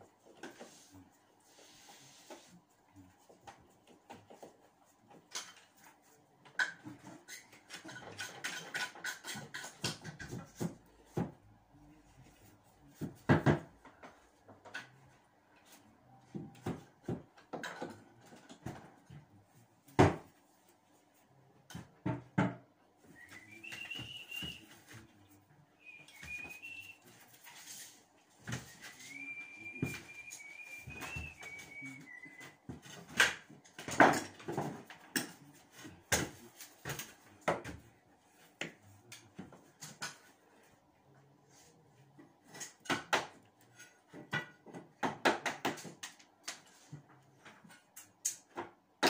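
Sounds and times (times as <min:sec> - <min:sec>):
tapping and scraping on a wall: 0:03.3 - 0:11.4, 0:42.2 - 0:48.8.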